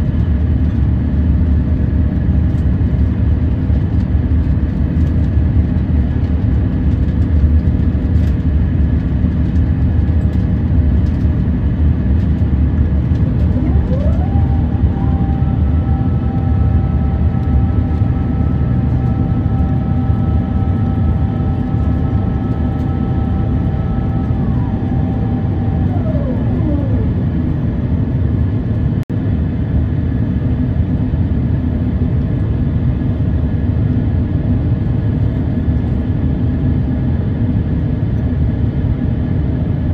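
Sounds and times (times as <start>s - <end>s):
jet engines roaring in cabin: 0.0s - 39.9s
rising and falling whine: 9.7s - 29.0s.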